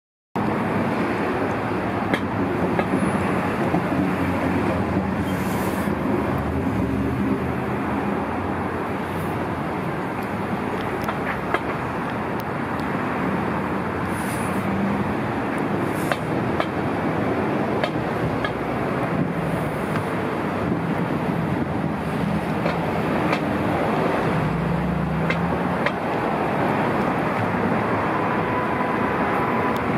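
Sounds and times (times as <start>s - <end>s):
passing cars rumble and hiss: 0.4s - 29.9s.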